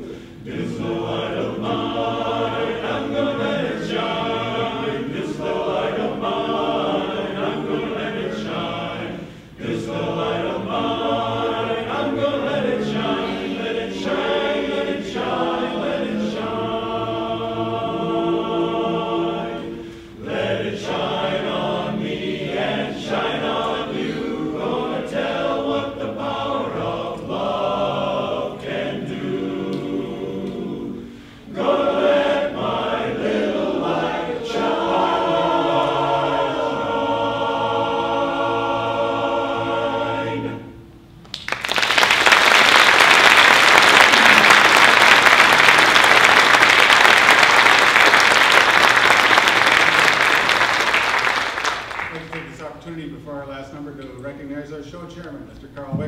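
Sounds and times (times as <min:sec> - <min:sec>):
men's chorus singing a cappella: 0:00.0 - 0:40.8
audience applause: 0:41.3 - 0:52.6.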